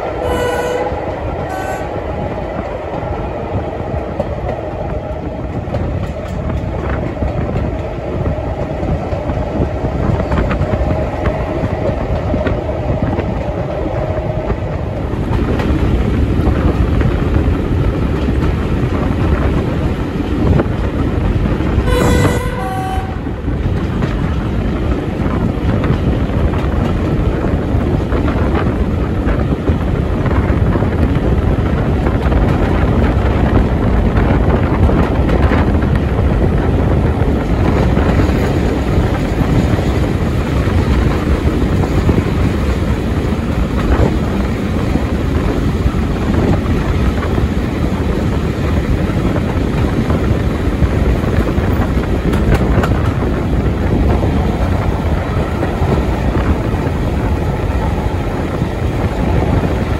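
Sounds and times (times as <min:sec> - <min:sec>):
train wheel and engine noise: 0:00.0 - 0:59.9
two-tone locomotive horn: 0:00.1 - 0:02.0, 0:21.8 - 0:23.4.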